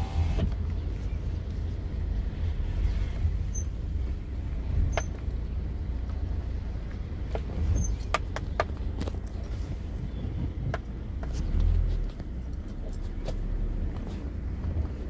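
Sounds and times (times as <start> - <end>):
wind buffeting microphone: 6.6 - 11.6.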